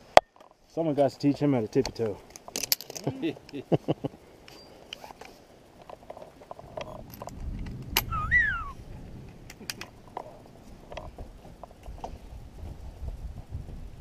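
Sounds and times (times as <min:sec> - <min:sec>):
metal harness clicks and clinks: 0:01.8 - 0:03.6
wind rumble on microphone: 0:06.5 - 0:14.0
short squeal: 0:08.0 - 0:08.8.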